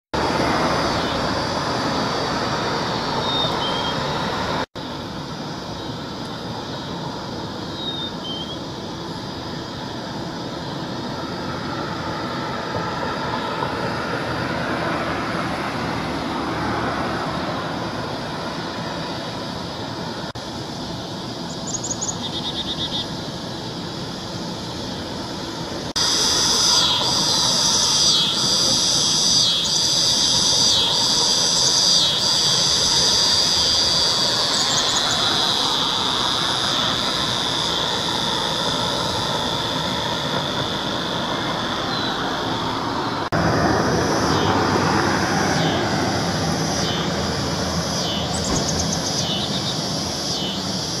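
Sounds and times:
broad noisy background: 0.2 - 51.0
chickadee calls: 2.8 - 4.3, 7.6 - 8.7, 21.4 - 23.3, 26.0 - 38.4, 45.5 - 45.9, 46.7 - 47.3, 47.9 - 50.9
high-pitched ringing: 26.0 - 39.7.

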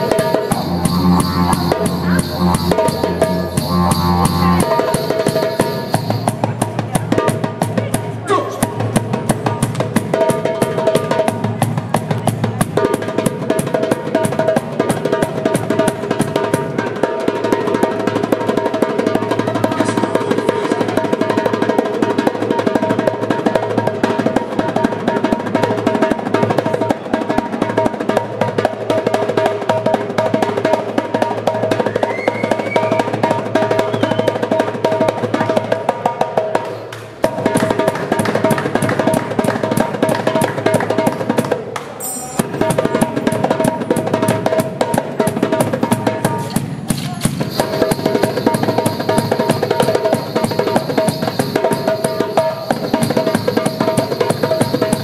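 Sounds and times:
didgeridoo drone: 0.0 - 6.7
goblet drum rolls: 0.0 - 8.1, 42.2 - 55.0.

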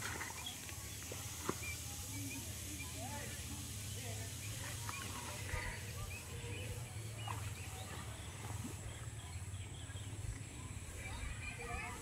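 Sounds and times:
bird calls: 0.0 - 12.0.

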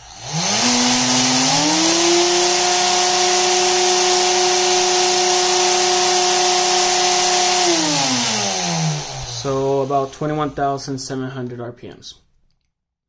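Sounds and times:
electric motor whine: 0.0 - 10.1.

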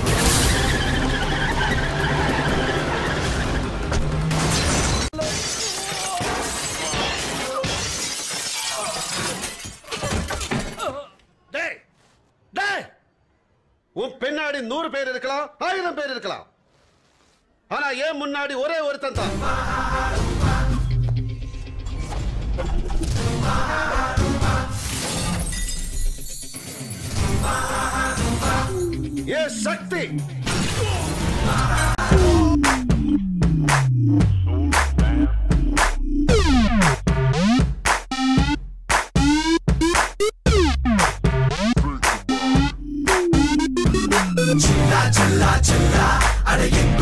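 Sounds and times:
dramatic film score: 0.0 - 5.1, 19.2 - 24.9
glass shattering: 4.3 - 10.8, 24.8 - 28.4
music: 19.2 - 47.0.

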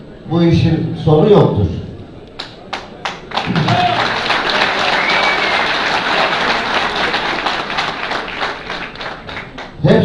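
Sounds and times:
audience applauding: 2.4 - 9.8.

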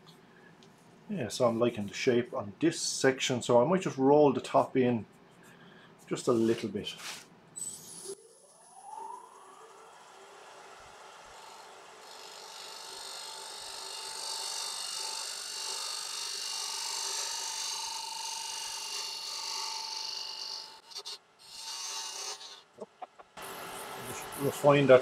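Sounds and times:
wood lathe motor whine: 7.8 - 21.1
turning tool cutting wood: 9.4 - 22.7.

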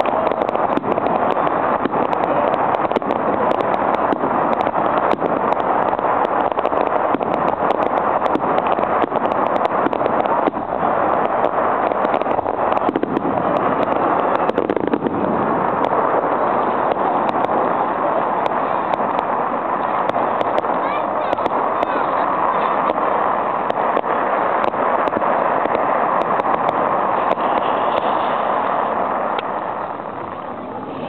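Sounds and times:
fireworks crackling snaps: 0.0 - 31.0
fireworks rushing noise: 0.0 - 31.0.

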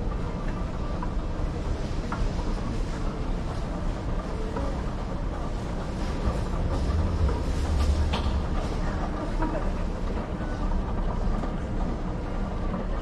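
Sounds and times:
light clicks and clatters: 0.4 - 13.0
low rumble: 5.2 - 10.9.

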